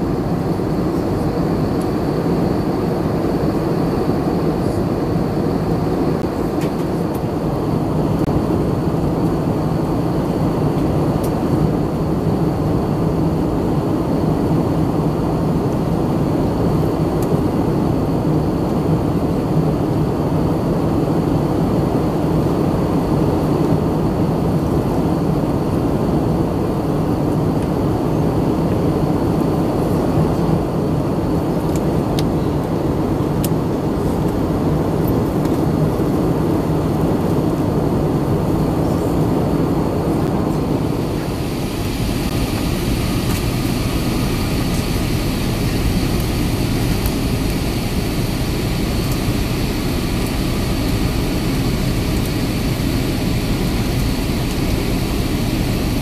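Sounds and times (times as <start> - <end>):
jet engines droning: 0.0 - 56.0
airflow rushing over fuselage: 21.4 - 56.0.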